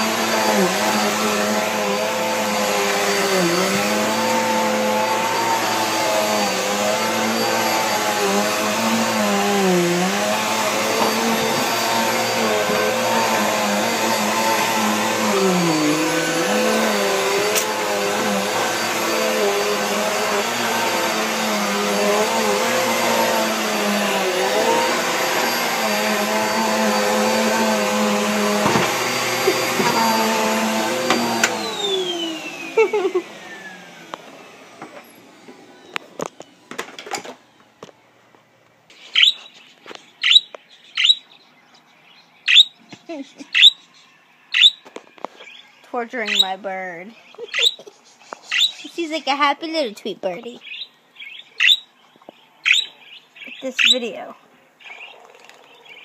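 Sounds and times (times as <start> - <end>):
vacuum motor spinning down: 0.0 - 36.5
vacuum cleaner running: 0.0 - 38.1, 46.0 - 46.6.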